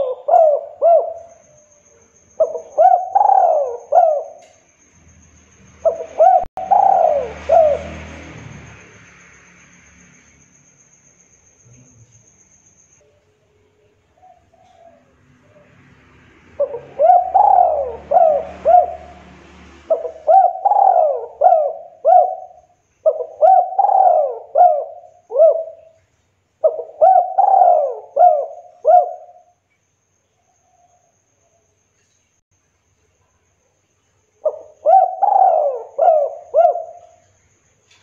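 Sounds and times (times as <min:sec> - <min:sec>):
dove cooing: 0:00.0 - 0:01.5, 0:02.4 - 0:04.5, 0:05.8 - 0:08.2, 0:14.2 - 0:15.8, 0:16.6 - 0:26.0, 0:26.6 - 0:29.5, 0:34.4 - 0:37.2.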